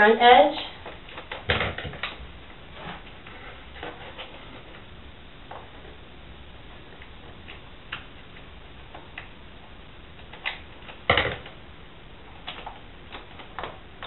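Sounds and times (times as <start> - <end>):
vinyl film clicks and ticks: 7.0 - 11.6.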